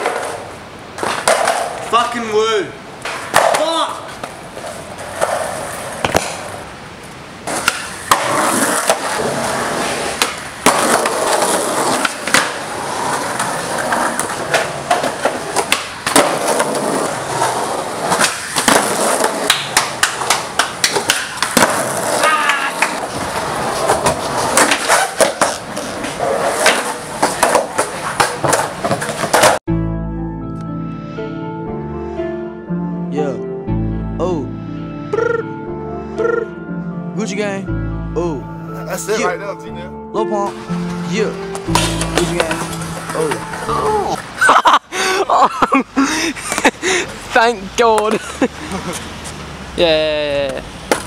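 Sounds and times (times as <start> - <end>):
skateboard clacks: 0.0 - 2.1, 3.0 - 6.5, 7.4 - 29.6, 50.4 - 51.0
skateboard wheels rolling on concrete: 0.0 - 29.7, 40.5 - 51.0.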